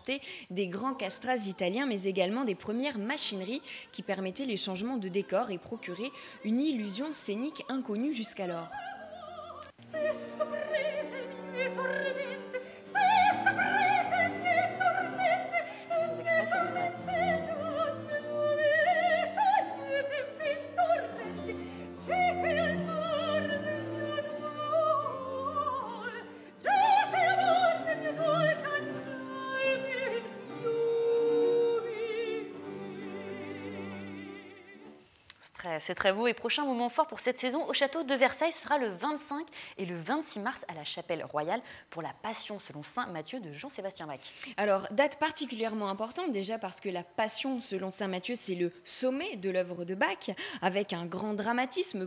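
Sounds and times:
high solo voice singing opera: 5.0s - 32.6s.

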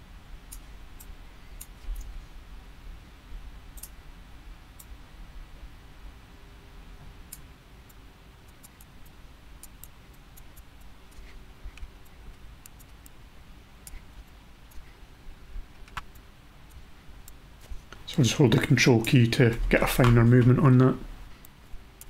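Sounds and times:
faint hum: 0.0s - 22.0s
computer mouse clicking: 3.8s - 4.0s, 7.3s - 13.2s, 13.8s - 14.9s, 15.7s - 17.4s.

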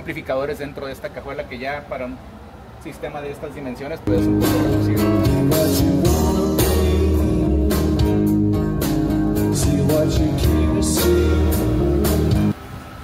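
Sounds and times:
guitar-led music: 4.1s - 12.6s.

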